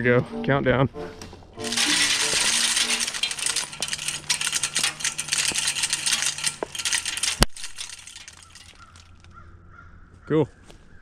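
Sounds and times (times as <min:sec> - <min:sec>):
corn kernels rattling and scattering: 0:01.6 - 0:09.4.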